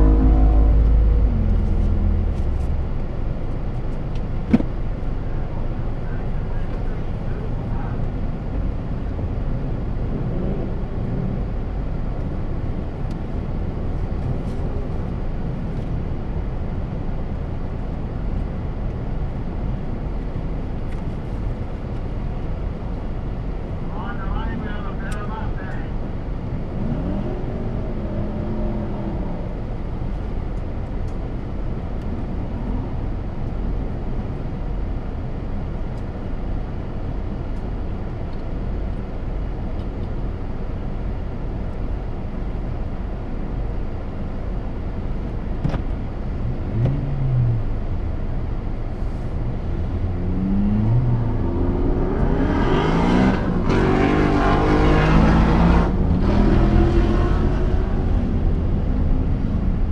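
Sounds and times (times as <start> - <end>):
engine revving: 0.0 - 2.9, 49.9 - 59.0.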